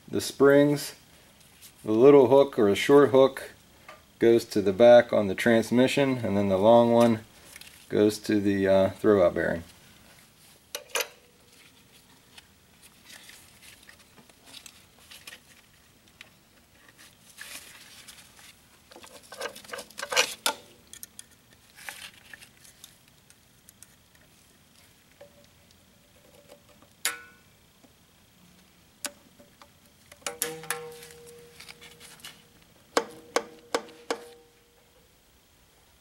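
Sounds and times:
pliers and spring metal clicks: 30.1 - 31.9
sharp metal clink: 30.3 - 31.9.

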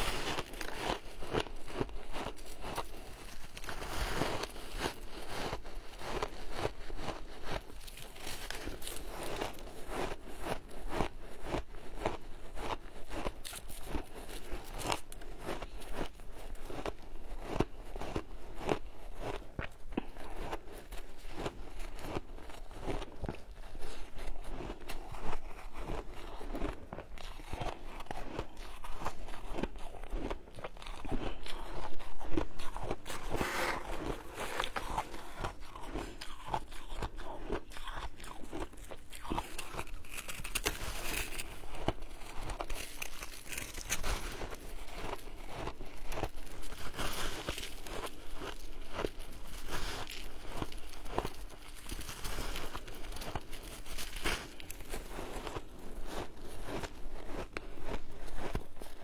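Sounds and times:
ice crunching when chewed: 0.0 - 59.0
spoon digging packed ice: 30.9 - 59.0.

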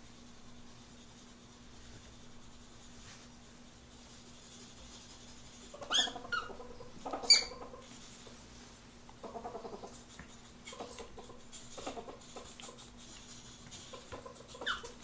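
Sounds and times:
ferret pulsed chattering: 5.7 - 7.9, 13.8 - 15.0
ferret squeals: 5.8 - 7.6, 14.5 - 15.0.

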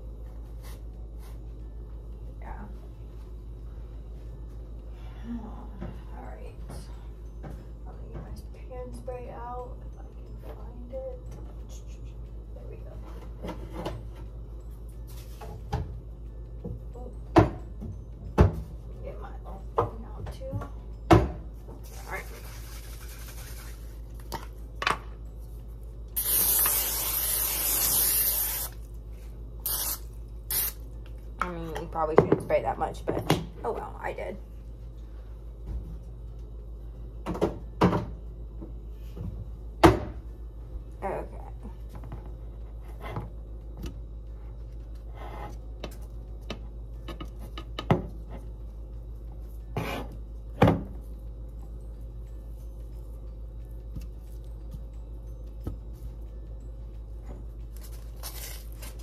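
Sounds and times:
steady low hum: 0.0 - 59.0
aerosol spray hissing: 26.2 - 28.8, 29.6 - 30.8.

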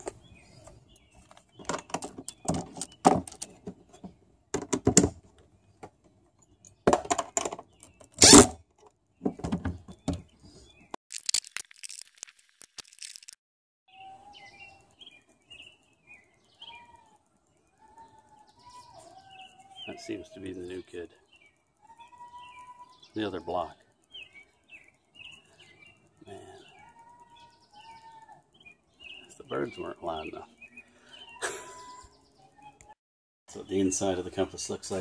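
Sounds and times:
plastic clicks and knocks: 1.2 - 5.2
birds chirping and whistling: 13.9 - 33.0.

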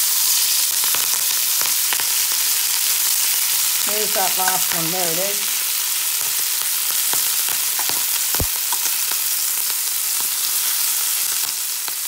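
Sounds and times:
meat sizzling in a pan: 0.0 - 12.0.

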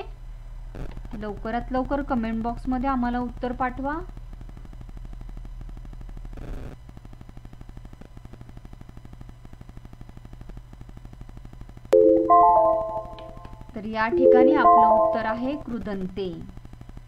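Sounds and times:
mallet-like chime: 12.0 - 13.6, 14.2 - 15.6.

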